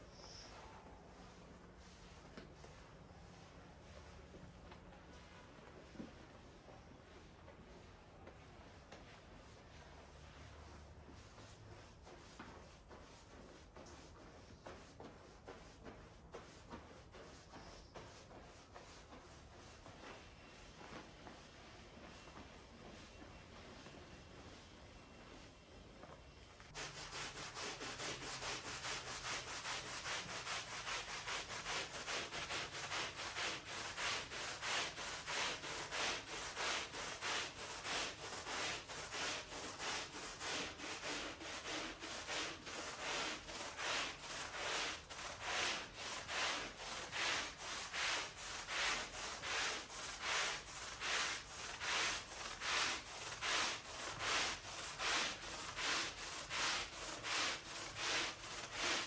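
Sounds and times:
brush scrubbing wet rug: 26.7 - 59.0.

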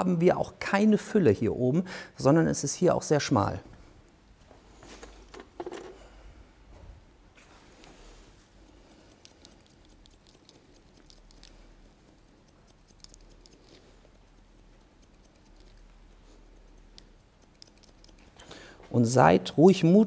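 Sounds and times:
scissors snipping hair: 8.6 - 18.4.

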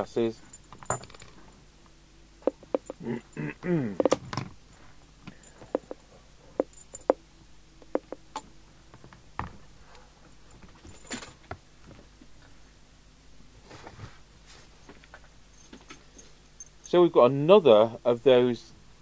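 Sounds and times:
clicks and knocks of plugs: 4.0 - 4.5, 7.8 - 9.6
short rustle: 13.6 - 15.0.

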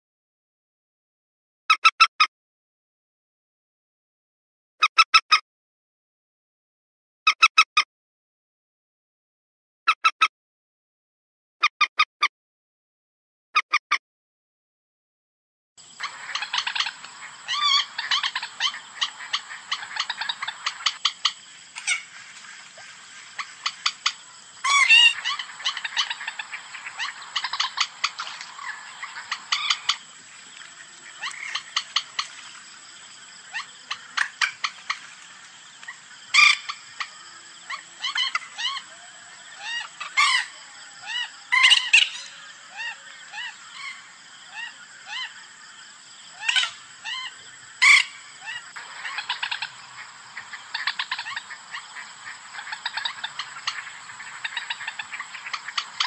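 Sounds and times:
faint steady hiss: 15.9 - 40.5, 47.7 - 56.0
moorhen clucking calls: 16.0 - 45.5, 46.3 - 56.0.

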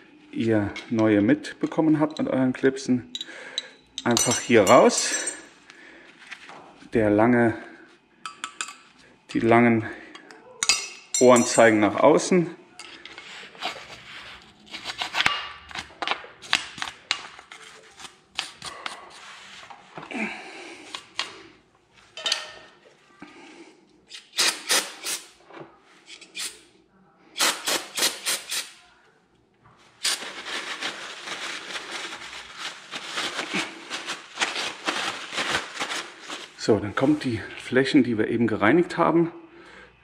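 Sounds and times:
aerosol spray can hissing: 27.4 - 28.7.

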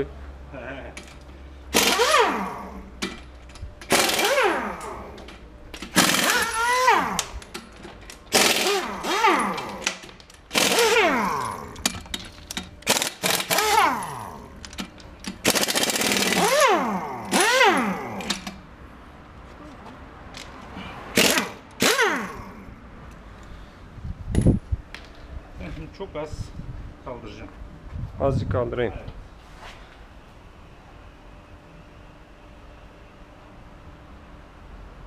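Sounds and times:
impact wrench rattling bursts: 1.0 - 18.7, 20.4 - 22.7.

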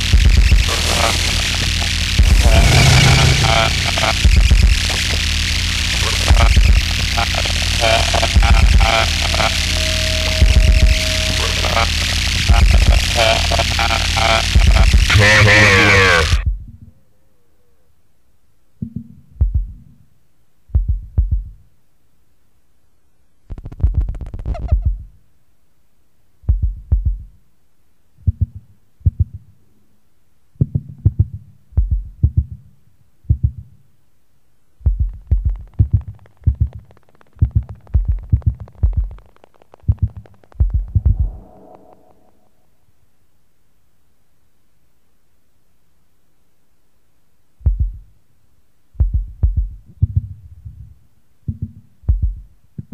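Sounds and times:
low thumping pulses: 0.0 - 15.1, 34.8 - 42.6
harsh high crackle: 0.0 - 16.4, 23.5 - 24.8, 35.2 - 42.7
faint tape hiss: 0.0 - 52.9
pitched tone: 0.1 - 16.4, 40.9 - 42.7.

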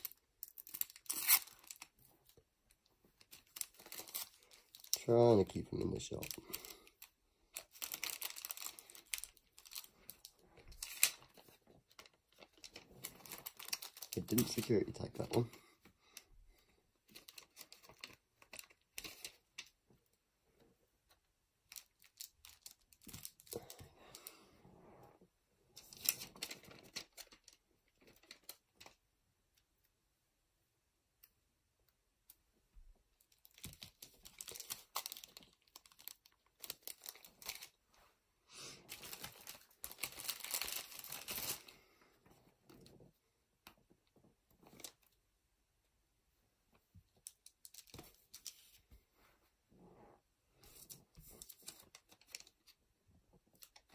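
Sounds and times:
plastic bags crinkling: 0.0 - 2.4, 3.2 - 15.5, 21.7 - 24.3, 33.3 - 37.8, 38.8 - 41.8.

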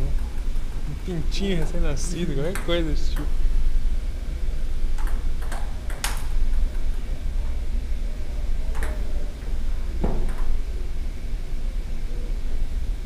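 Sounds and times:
low steady rumble: 0.0 - 13.0
ping pong ball clicks: 4.9 - 6.6.

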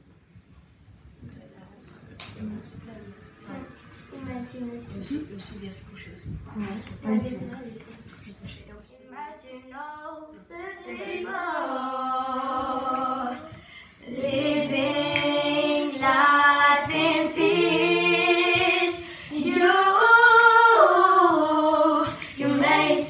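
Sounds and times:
children singing a cappella: 9.1 - 23.0.

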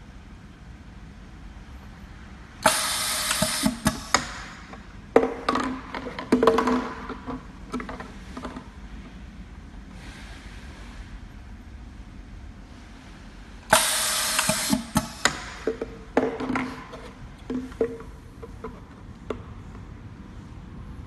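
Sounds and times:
low machine hum: 0.0 - 21.0
pneumatic hissing and clattering: 2.6 - 4.8, 13.7 - 17.9.

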